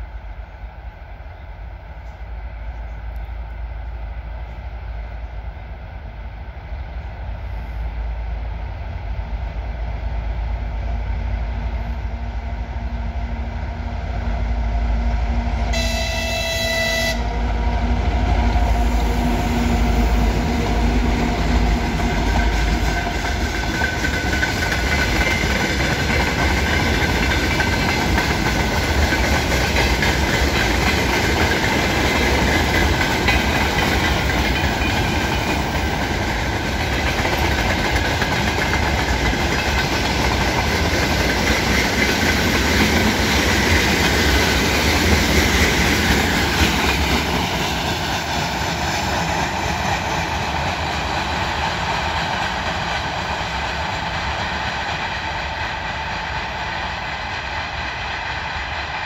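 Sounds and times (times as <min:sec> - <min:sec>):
diesel locomotive engine rumble: 0:00.0 - 0:59.0
locomotive horn: 0:15.7 - 0:17.5.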